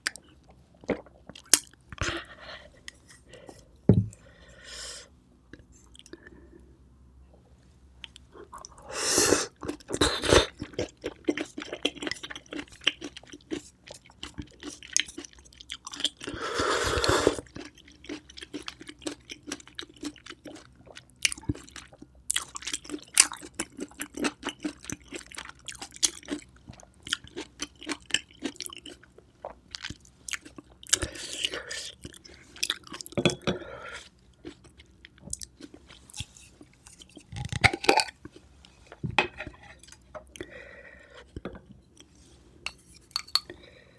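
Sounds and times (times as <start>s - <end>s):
chewing oyster: 9.5s - 16.4s, 17.0s - 33.2s, 33.9s - 38.4s.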